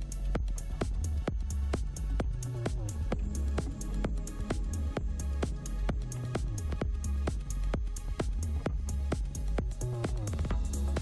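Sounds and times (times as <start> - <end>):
electronic dance music: 2.6 - 11.0.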